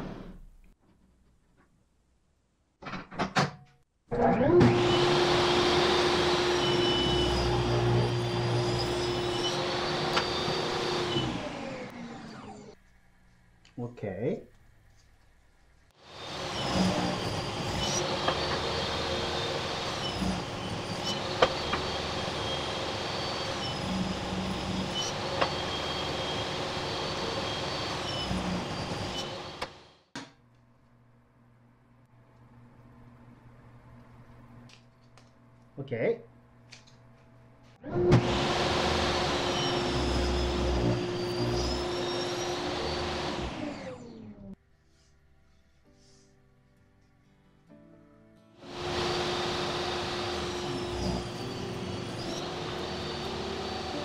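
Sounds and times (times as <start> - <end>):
table saw whine: 4.3 - 12.8, 16.0 - 30.1, 37.8 - 44.6, 48.6 - 54.0.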